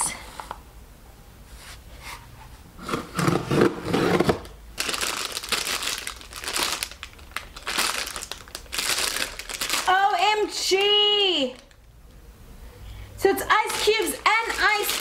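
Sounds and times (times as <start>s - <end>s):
plastic wrapping crinkling: 4.8s - 12.0s, 13.5s - 15.0s
rustling and handling: 13.4s - 15.0s.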